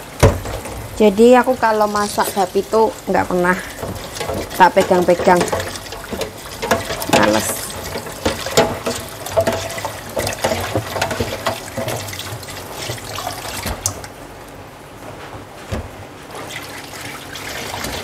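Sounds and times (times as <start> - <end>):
knocks and clatter: 0.0 - 1.0, 3.7 - 14.2
tap water running into sink: 0.0 - 14.2, 16.5 - 18.0.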